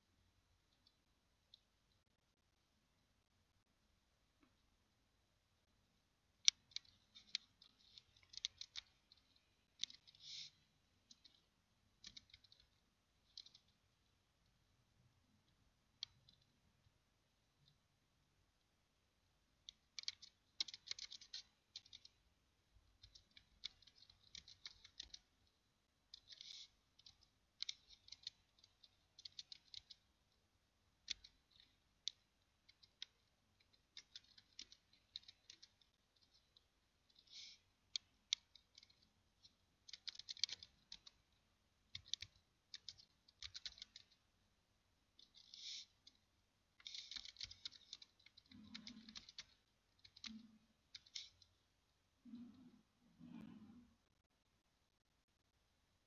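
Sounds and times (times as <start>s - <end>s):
keyboard typing: 6.4s - 13.8s, 19.6s - 22.2s, 22.9s - 25.5s, 26.1s - 44.3s, 45.2s - 46.2s, 46.8s - 51.6s.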